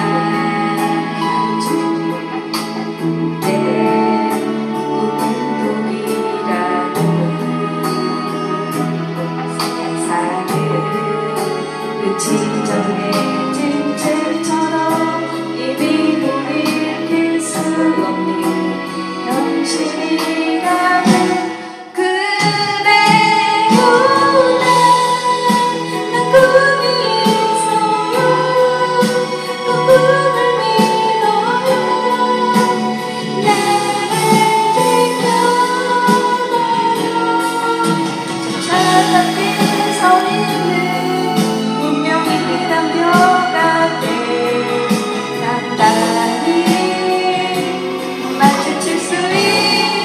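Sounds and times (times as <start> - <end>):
instrumental backing music: 0.0 - 50.0
song with sung melody and beat: 0.0 - 50.0
woman singing: 0.0 - 50.0.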